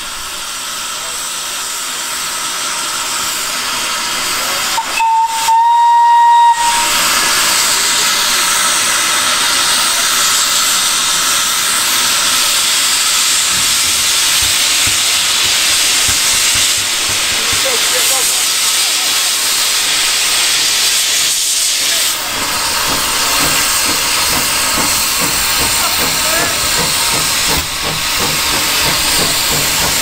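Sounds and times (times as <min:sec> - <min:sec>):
steam hissing: 0:00.0 - 0:30.0
steam locomotive whistle: 0:04.6 - 0:07.8.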